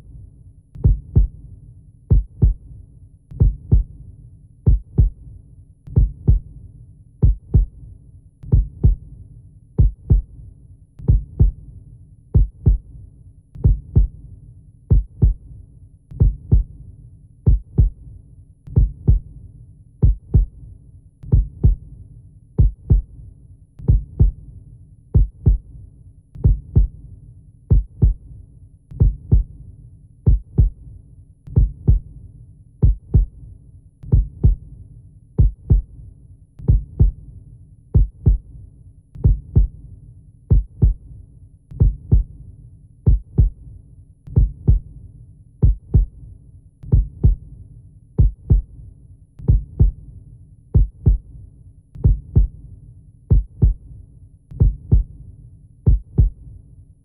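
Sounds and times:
slow heartbeat thumps: 0.8 - 1.4, 2.1 - 2.7, 3.4 - 4.0, 4.7 - 5.2, 5.9 - 6.5, 7.2 - 7.8, 8.5 - 9.1, 9.8 - 10.3, 11.0 - 11.6, 12.4 - 12.9, 13.6 - 14.2, 14.9 - 15.4, 16.2 - 16.8, 17.5 - 18.0, 18.7 - 19.3, 20.0 - 20.6, 21.3 - 21.9, 22.6 - 23.1, 23.8 - 24.4, 25.2 - 25.7, 26.4 - 27.0, 27.7 - 28.2, 29.0 - 29.6, 30.3 - 30.8, 31.5 - 32.1, 32.8 - 33.4, 34.1 - 34.6, 35.4 - 35.9, 36.6 - 37.2, 38.0 - 38.5, 39.2 - 39.8, 40.5 - 41.0, 41.7 - 42.3, 43.1 - 43.6, 44.3 - 44.9, 45.6 - 46.2, 46.8 - 47.5, 48.2 - 48.7, 49.4 - 50.0, 50.8 - 51.3, 52.0 - 52.6, 53.3 - 53.8, 54.5 - 55.1, 55.9 - 56.4.

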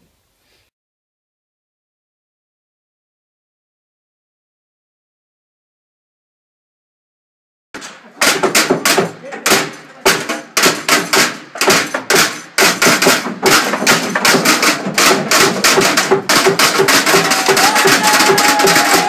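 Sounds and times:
sharp knocks and thuds: 7.8 - 19.0
voices: 9.2 - 10.4.

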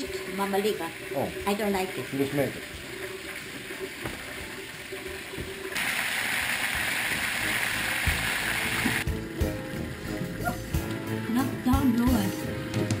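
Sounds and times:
chicken frying in a pan: 4.8 - 10.8.

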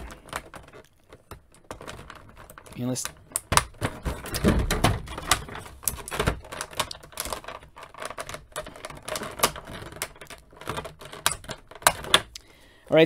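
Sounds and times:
plastic blister tray crinkling: 0.0 - 12.5.

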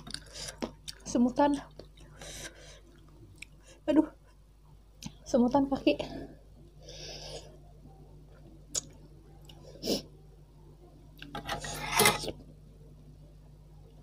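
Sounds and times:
metal spoon scraping a pot: 11.3 - 12.4.

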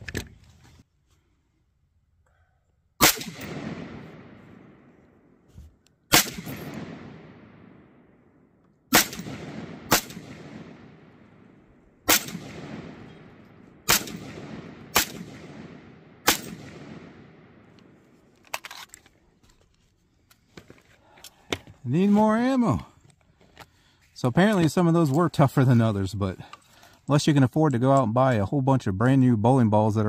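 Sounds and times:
rifle shots echoing: 3.0 - 5.2, 6.1 - 18.0.

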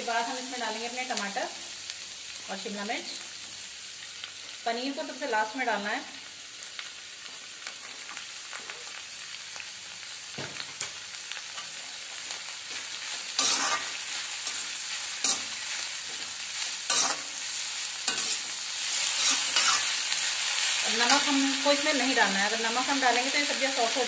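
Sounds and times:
vegetables sizzling in wok: 0.0 - 24.0
metal spatula scraping wok: 12.7 - 21.3.

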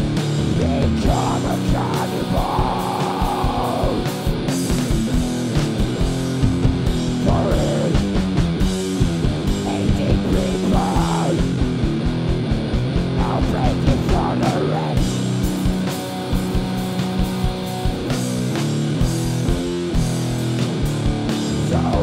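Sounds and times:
rock band playing: 0.0 - 22.0
wavering lead guitar line: 0.0 - 22.0.

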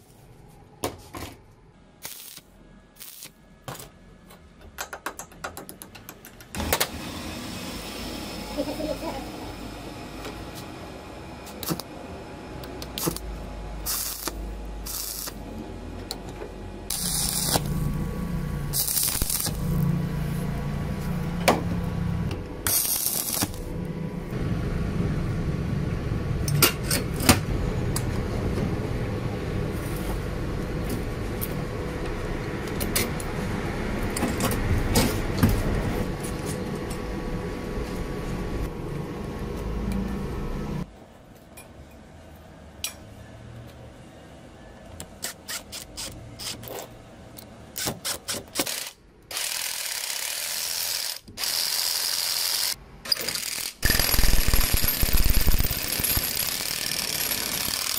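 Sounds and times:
steady low hum: 7.2 - 41.2
steel parts clinking and scraping: 53.1 - 57.9.

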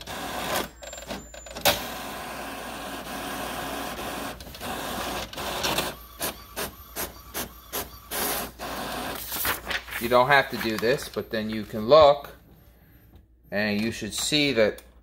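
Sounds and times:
printer mechanical whir: 0.0 - 9.8
printer regular strokes: 0.0 - 12.2.

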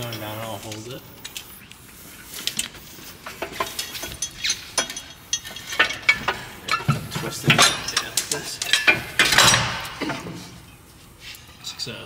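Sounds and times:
metal parts clicking and clanking: 2.3 - 10.8.

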